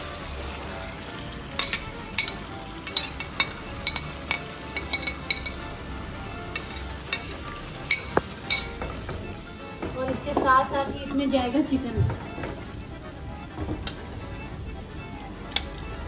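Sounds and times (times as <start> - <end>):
spatula and bowl clinking on pan: 1.5 - 5.9, 6.5 - 10.7.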